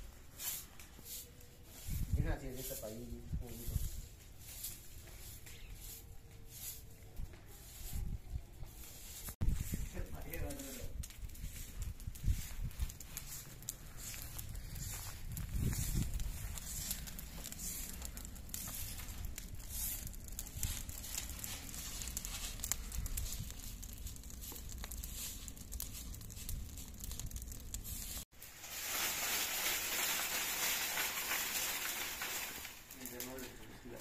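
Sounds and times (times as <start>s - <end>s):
broom sweeping leaves on concrete: 0.0s - 27.2s, 27.8s - 34.0s
leaves crackling in bonfire: 0.0s - 34.0s.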